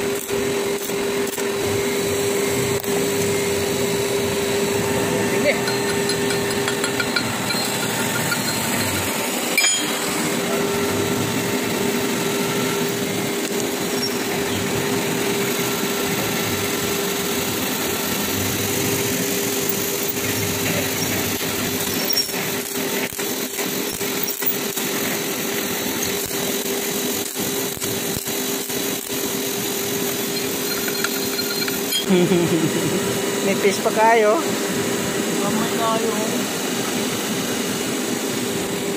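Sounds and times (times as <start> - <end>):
workshop machine humming: 0.0 - 38.9
hand tools clicking and scraping on metal: 5.6 - 10.1, 30.0 - 32.1.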